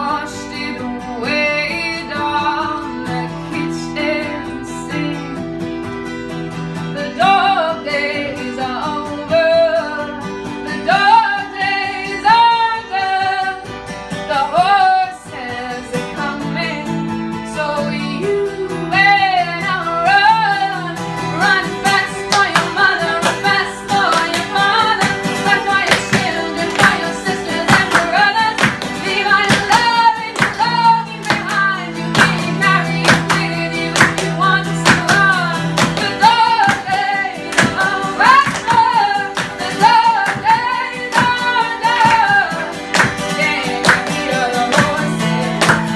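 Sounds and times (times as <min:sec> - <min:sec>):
woman singing: 0:00.0 - 0:05.8, 0:06.8 - 0:45.9
strummed acoustic guitar: 0:00.0 - 0:45.9
hand claps: 0:21.9 - 0:45.9.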